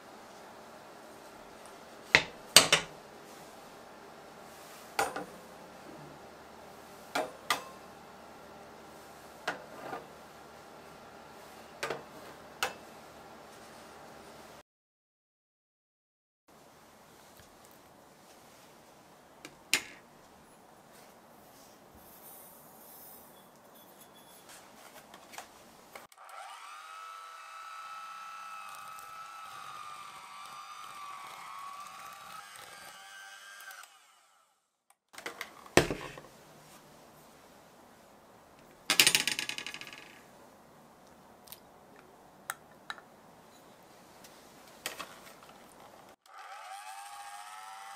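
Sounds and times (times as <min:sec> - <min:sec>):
electric mixer motor whining: 0:26.1 - 0:34.6, 0:46.2 - 0:47.9.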